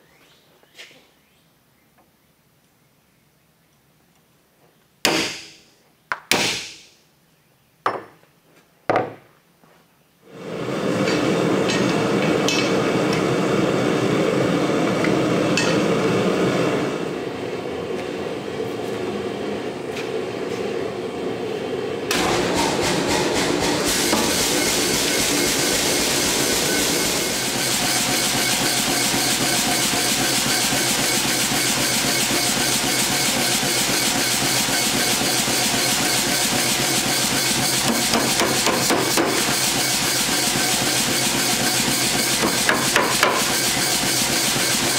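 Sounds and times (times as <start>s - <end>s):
power hammer striking steel: 5.1s - 5.6s, 6.3s - 6.8s, 11.0s - 12.9s, 15.6s - 15.8s, 22.1s - 34.1s, 34.7s - 40.6s, 41.6s - 44.9s
gas forge burners roaring: 10.2s - 44.9s.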